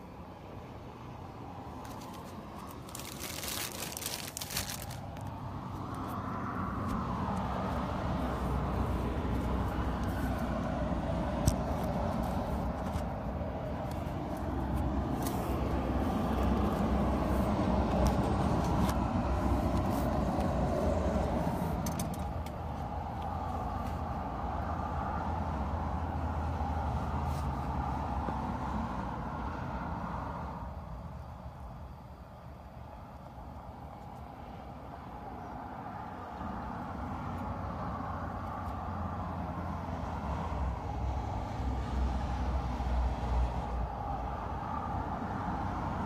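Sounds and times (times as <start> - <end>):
motor vehicle rumble: 0.0 - 32.0
rustling handling noise: 1.7 - 6.2, 11.4 - 22.9.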